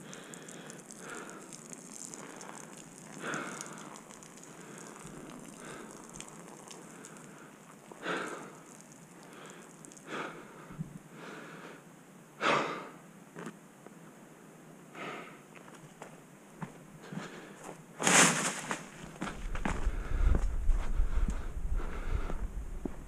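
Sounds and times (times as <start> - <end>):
footsteps on dirt and leaves: 15.6 - 21.5
puffs of breath: 19.8 - 22.5.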